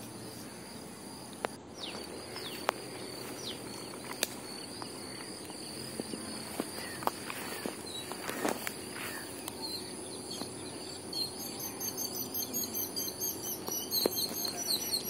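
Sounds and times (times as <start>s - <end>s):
high-pitched insect drone: 0.0s - 15.0s
bird chirps: 0.3s - 15.0s
sharp clicks: 3.9s - 5.6s.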